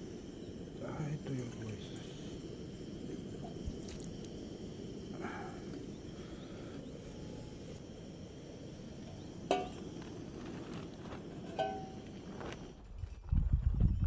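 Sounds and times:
sharp sound with ringing tone: 0:11.5 - 0:12.1.

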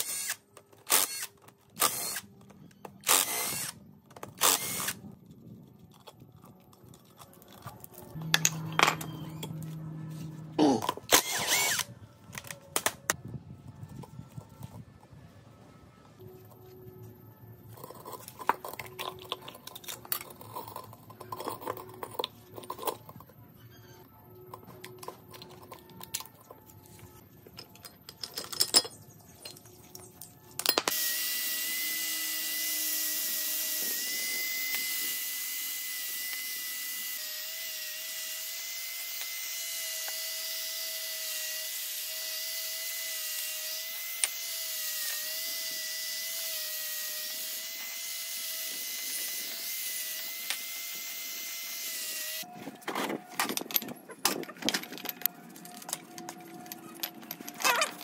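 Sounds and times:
power tool whining: 0:00.0 - 0:05.0, 0:07.5 - 0:12.4, 0:30.9 - 0:52.8.

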